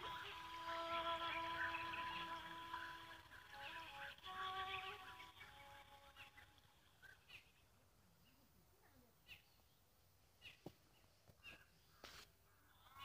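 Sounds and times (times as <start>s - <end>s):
faint bird calls: 10.4s - 13.0s.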